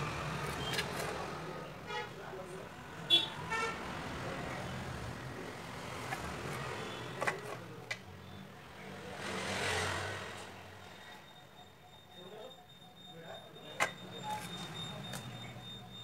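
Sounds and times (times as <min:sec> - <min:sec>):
road traffic noise: 0:00.0 - 0:16.0
vehicle passing: 0:08.7 - 0:11.1.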